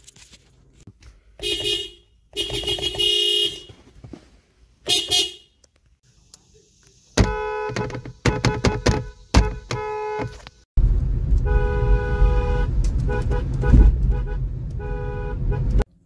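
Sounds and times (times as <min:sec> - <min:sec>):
car horn beeps: 0:01.4 - 0:03.8, 0:04.9 - 0:05.6, 0:07.2 - 0:10.5, 0:11.4 - 0:15.8
louder horn blasting: 0:01.4 - 0:03.8, 0:04.9 - 0:05.6, 0:07.2 - 0:10.4, 0:11.4 - 0:15.8.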